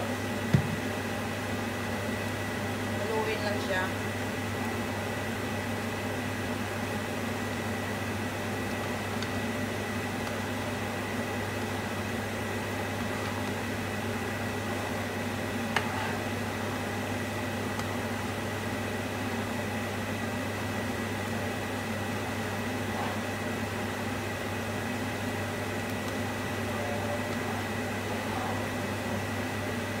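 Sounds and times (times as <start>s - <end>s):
induction hob humming: 0.0s - 30.0s
spatula stirring thick sauce: 8.0s - 18.4s.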